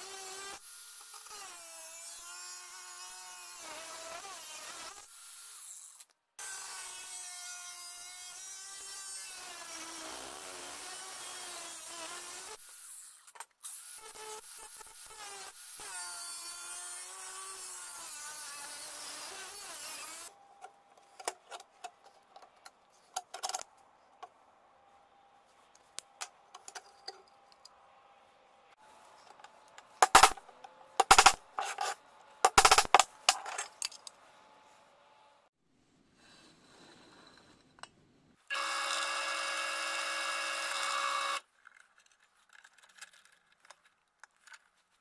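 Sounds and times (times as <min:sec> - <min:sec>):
angle grinder cutting steel: 0:14.6 - 0:20.3.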